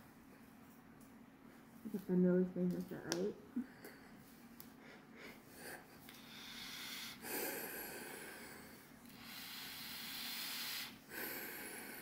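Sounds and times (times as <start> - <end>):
breathing through a gas mask: 6.2 - 12.0.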